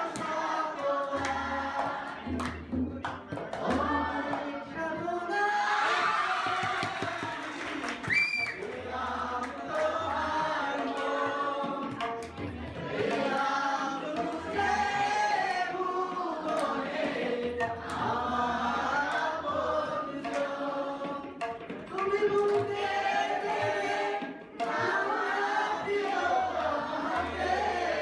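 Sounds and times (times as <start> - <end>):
tabla: 0.0 - 28.0
man singing into a microphone: 3.4 - 6.8.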